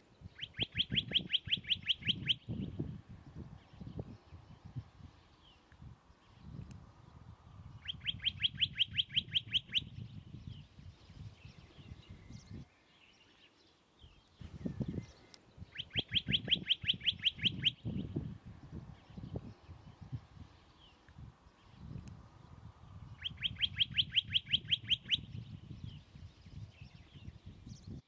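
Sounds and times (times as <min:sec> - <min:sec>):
bird singing trills: 0:00.2 - 0:02.8, 0:07.7 - 0:21.0, 0:22.9 - 0:28.0.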